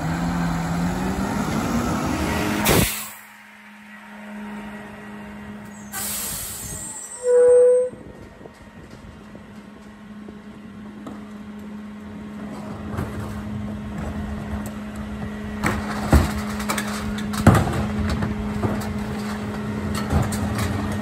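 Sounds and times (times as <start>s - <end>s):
garbage truck engine and hydraulics: 0.0s - 21.0s
recycling crashing in hopper: 15.5s - 21.0s.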